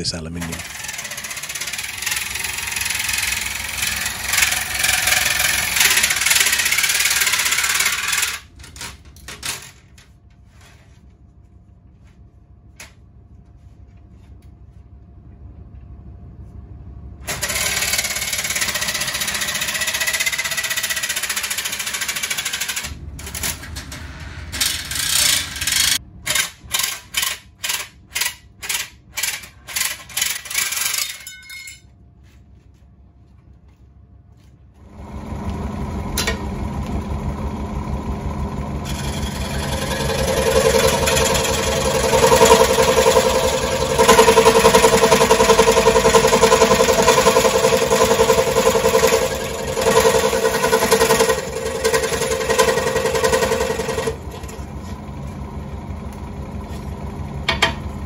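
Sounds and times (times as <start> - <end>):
jigsaw cutting metal sheet: 0.4 - 8.5, 17.3 - 26.9, 38.8 - 54.2
scroll saw motor running: 0.4 - 8.5, 17.3 - 23.6, 24.4 - 26.0, 38.8 - 54.3.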